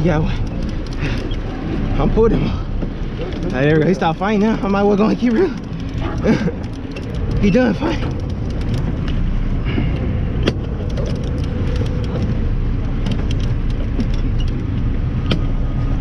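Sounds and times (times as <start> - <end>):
boat engine rumbling: 0.0 - 16.0
water noise: 0.0 - 16.0
wind: 0.0 - 16.0
sharp clicks: 0.3 - 1.4, 5.2 - 9.2, 10.4 - 12.4.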